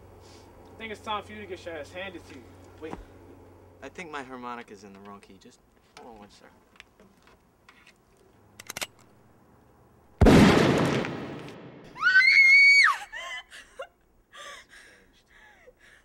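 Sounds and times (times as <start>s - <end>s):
loud bang: 10.2s - 12.0s
woman screaming: 12.0s - 13.5s
woman whimpering: 12.8s - 16.0s.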